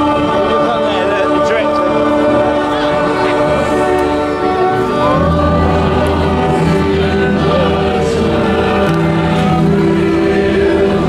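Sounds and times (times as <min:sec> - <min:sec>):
choir singing held chords: 0:00.0 - 0:11.0.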